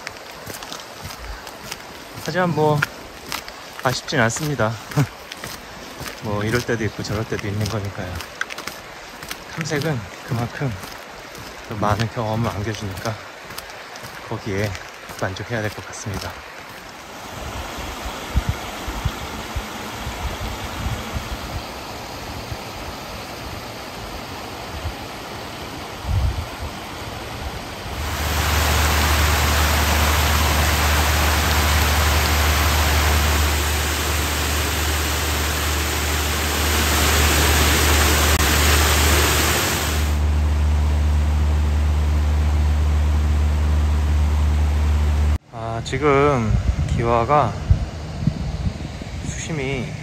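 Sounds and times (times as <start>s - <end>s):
paddlewheels splashing water: 0.0s - 22.9s, 27.6s - 41.5s
low rumbling wind gusts: 17.0s - 42.0s, 45.8s - 50.0s
low motor hum: 27.8s - 45.4s.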